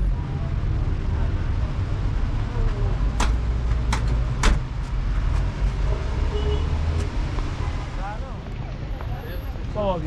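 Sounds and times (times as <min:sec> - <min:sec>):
vehicle engine rumbling: 0:00.0 - 0:10.0.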